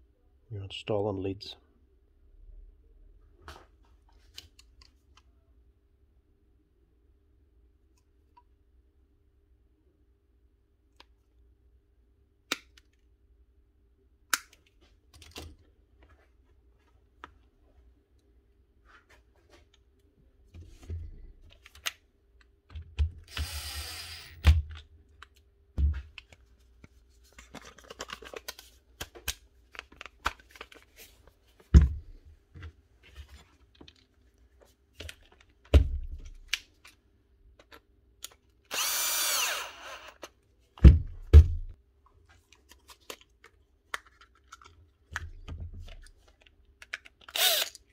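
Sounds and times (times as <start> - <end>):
cordless drill running: 23.3 - 24.4, 38.7 - 40.2, 47.4 - 47.8.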